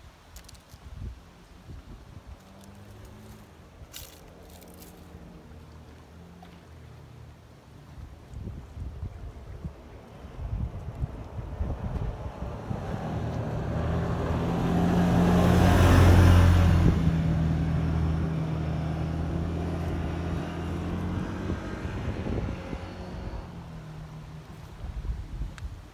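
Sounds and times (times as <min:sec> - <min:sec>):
car passing: 0:02.4 - 0:08.1, 0:09.7 - 0:25.5.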